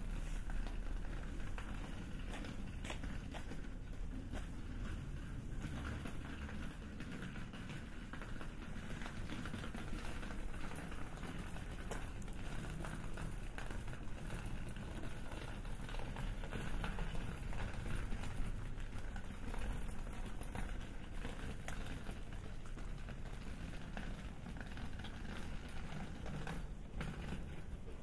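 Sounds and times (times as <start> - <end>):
low city hum: 0.0 - 28.0
faint pattering footsteps: 0.1 - 4.8.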